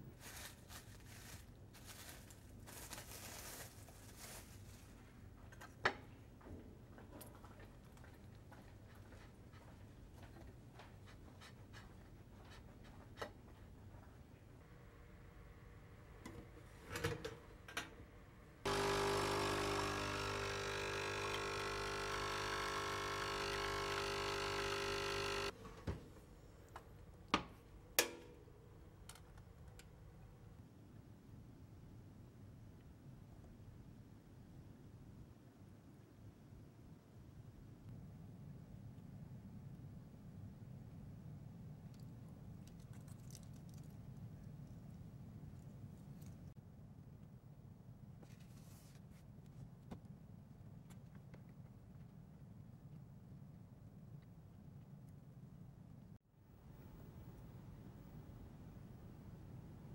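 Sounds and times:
plastic wrap crinkling: 0.2s - 5.0s
coffee machine pump buzzing: 18.7s - 25.6s.

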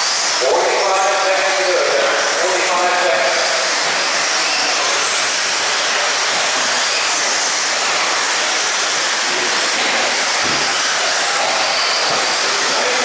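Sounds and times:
radio-controlled cars hissing: 0.0s - 13.0s.

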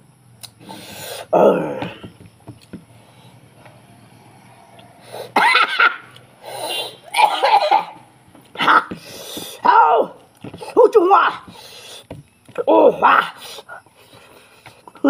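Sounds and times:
man laughing loudly: 5.4s - 6.1s.

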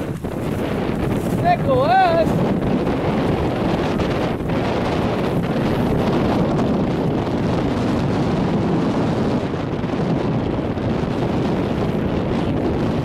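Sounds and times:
choppy water: 0.0s - 13.0s
wind buffeting microphone: 0.0s - 13.0s.

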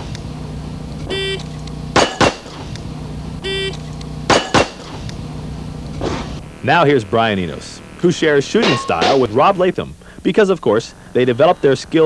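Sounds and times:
steady low hum: 0.0s - 12.0s
pistol shots: 1.9s - 2.7s, 4.2s - 5.0s.

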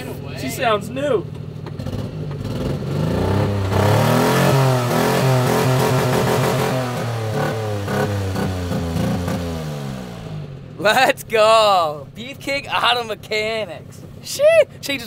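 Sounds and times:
truck engine revving: 0.0s - 10.8s.

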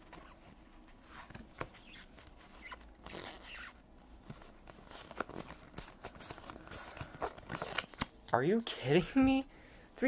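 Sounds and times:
trading cards flipped by hand: 4.3s - 8.2s.

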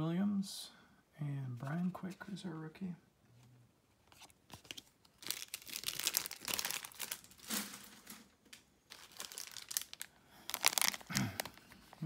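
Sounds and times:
card pack wrapper crinkling: 4.1s - 12.0s.

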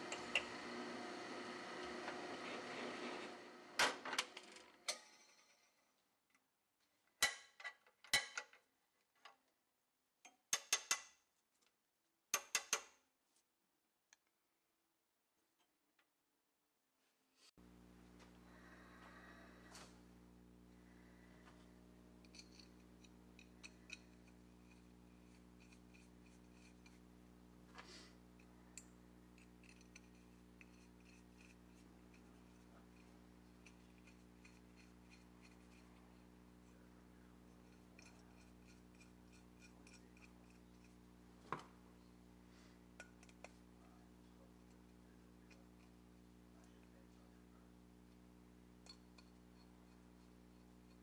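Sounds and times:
low steady hum: 17.6s - 51.0s.

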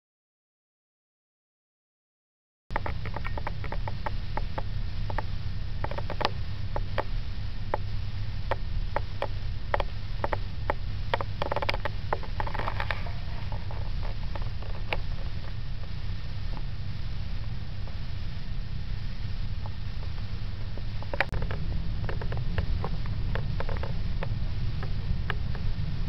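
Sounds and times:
sharp clicks and taps: 2.7s - 7.1s
steady low hum: 2.7s - 26.0s.

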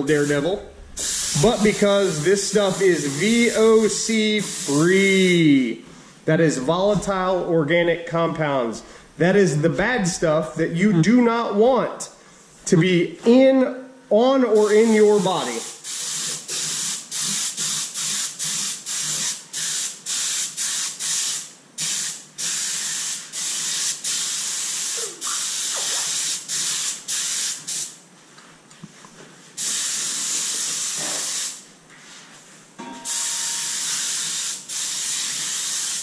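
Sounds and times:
spray gun hissing: 0.0s - 5.2s, 14.6s - 27.9s, 29.6s - 31.6s, 33.1s - 36.0s.

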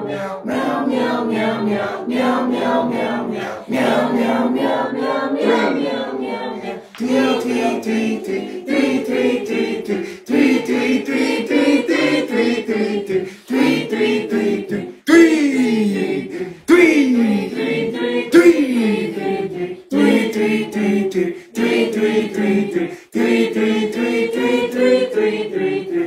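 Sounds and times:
voices chanting meow in unison: 0.0s - 26.0s.

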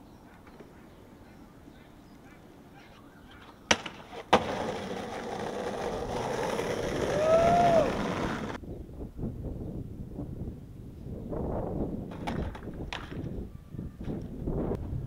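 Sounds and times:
skateboard wheels rolling on asphalt: 0.2s - 8.6s, 11.7s - 14.6s
skateboard clacks: 3.3s - 8.6s, 12.1s - 13.3s.

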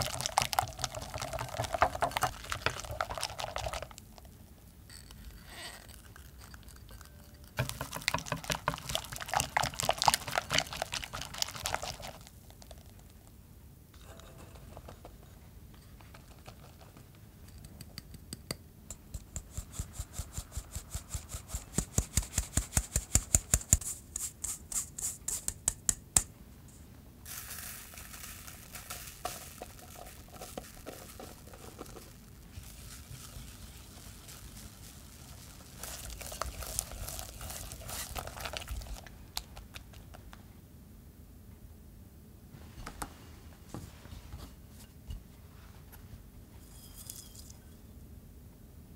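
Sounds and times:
whisk rustling through powder: 0.0s - 4.0s, 5.8s - 12.3s, 27.3s - 39.9s.

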